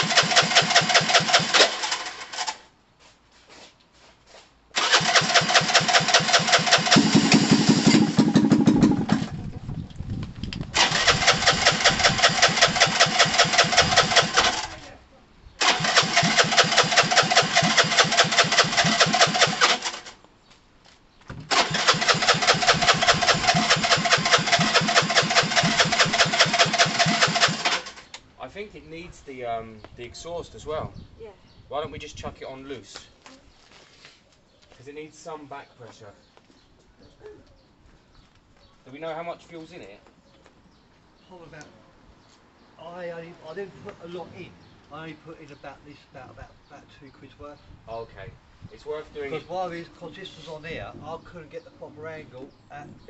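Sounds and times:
motorcycle engine cranking: 0.0 - 2.6, 4.8 - 9.4, 10.7 - 14.8, 15.6 - 20.2, 21.5 - 28.1.

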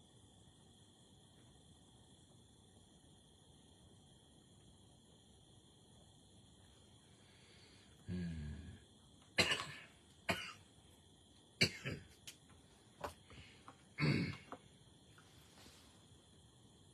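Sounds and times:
man coughing and clearing throat: 9.4 - 10.6, 11.6 - 12.2, 14.0 - 14.6.

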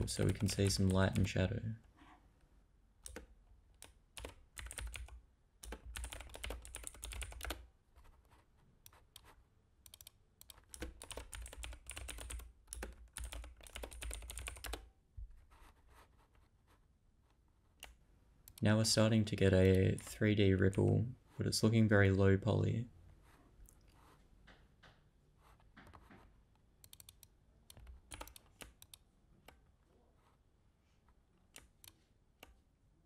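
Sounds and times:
typing on computer keyboard: 0.0 - 1.3, 3.0 - 14.9, 26.8 - 29.6.

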